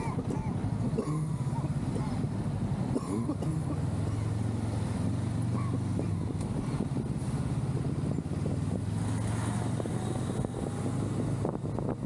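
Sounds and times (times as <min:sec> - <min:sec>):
motorcycle engine cruising: 0:00.0 - 0:12.0
wind noise on microphone: 0:04.6 - 0:12.0.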